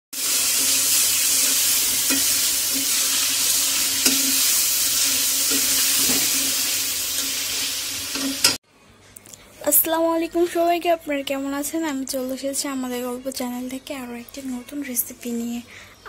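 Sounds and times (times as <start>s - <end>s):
food sizzling in oil: 0.1s - 8.6s.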